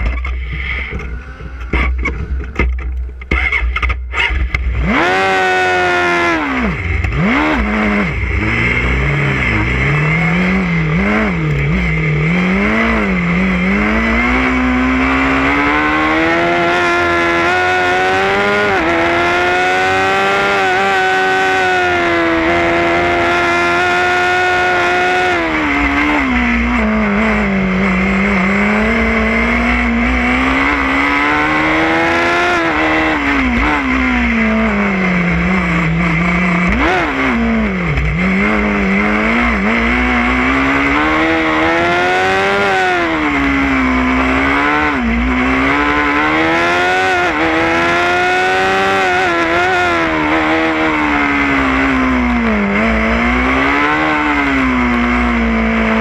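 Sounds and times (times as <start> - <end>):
race car engine revving: 0.0 - 56.0.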